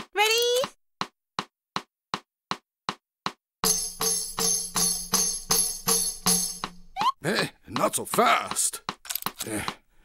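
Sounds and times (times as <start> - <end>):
tambourine strikes: 3.6 - 6.9.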